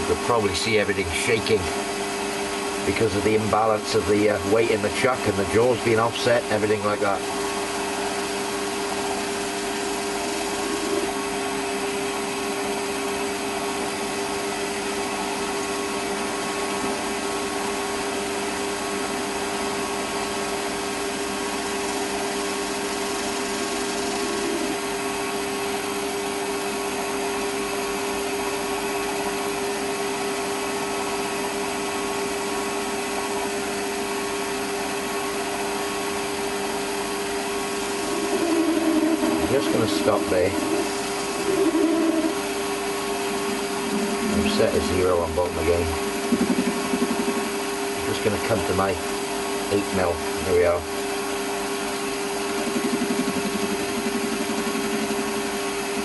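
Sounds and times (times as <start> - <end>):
metal lathe cutting: 9.2 - 12.7, 21.5 - 25.4, 36.8 - 41.6, 42.2 - 50.4.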